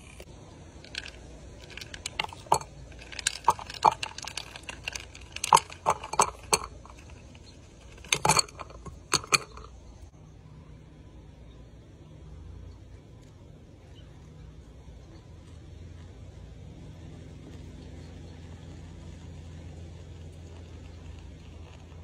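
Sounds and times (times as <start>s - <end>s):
ice cubes clinking against glass: 0.9s - 9.7s.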